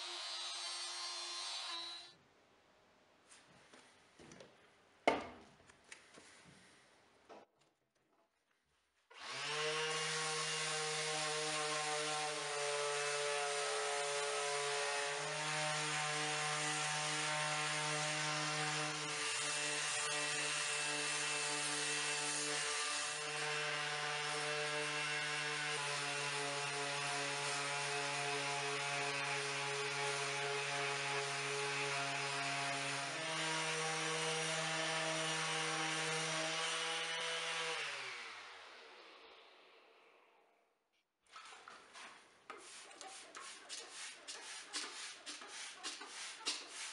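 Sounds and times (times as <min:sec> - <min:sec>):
sanding pad hissing on wood: 0:42.6 - 0:46.9.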